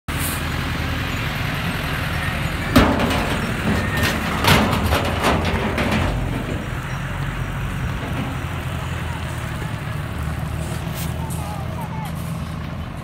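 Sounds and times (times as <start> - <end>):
truck engine running: 0.1 - 13.0
sharp clattering: 2.7 - 9.0.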